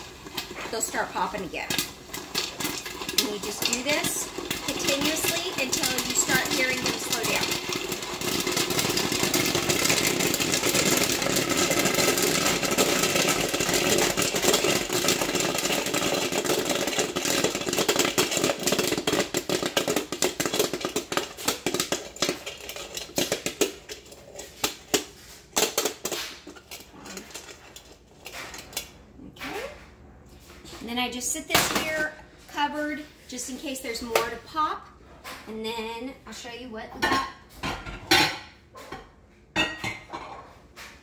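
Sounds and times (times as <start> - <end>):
popcorn popping: 0.0 - 29.9, 30.8 - 33.1.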